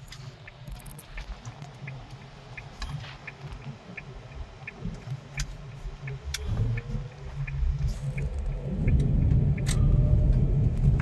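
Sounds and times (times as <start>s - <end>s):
car rumble inside cabin: 0.0s - 11.0s
turn signal clicking: 0.0s - 11.0s.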